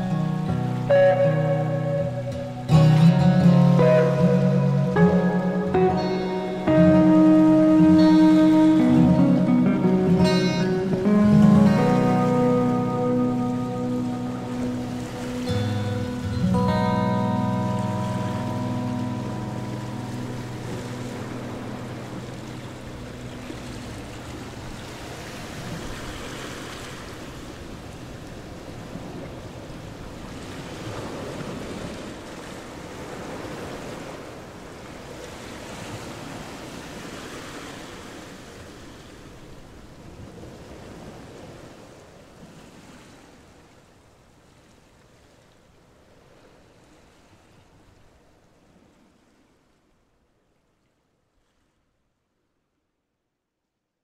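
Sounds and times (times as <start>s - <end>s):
background music: 0.0s - 24.4s.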